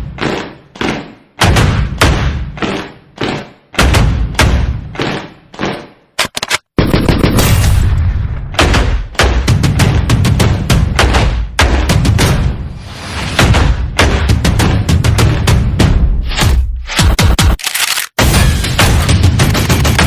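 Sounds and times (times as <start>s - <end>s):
echoing gunshot sound effects: 0.0s - 2.6s.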